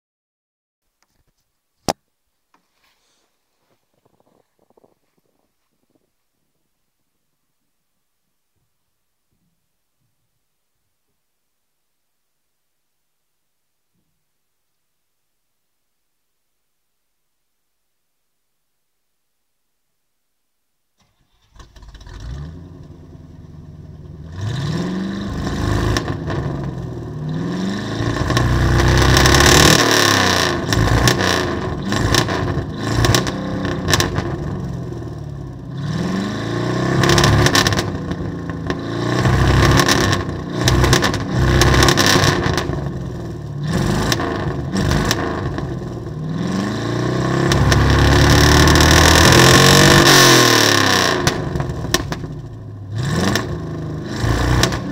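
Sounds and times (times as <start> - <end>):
truck engine starting and revving: 21.0 - 54.9.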